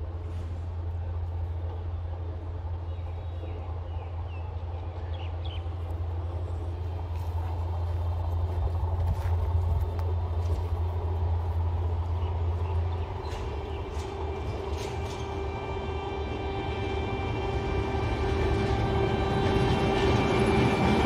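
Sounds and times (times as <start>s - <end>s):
diesel engine droning: 0.0s - 21.0s.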